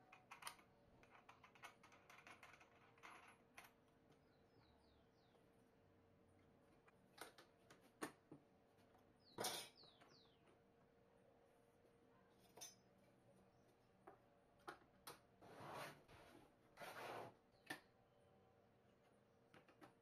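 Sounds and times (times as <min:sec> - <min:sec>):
metal tools clicking and tapping: 0:12.5 - 0:12.8.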